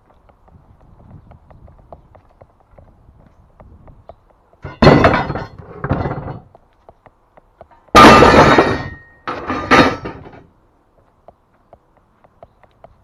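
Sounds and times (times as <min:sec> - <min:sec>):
steel scaffold clattering: 0:04.6 - 0:06.5, 0:07.9 - 0:10.5
metallic ring: 0:08.0 - 0:10.3.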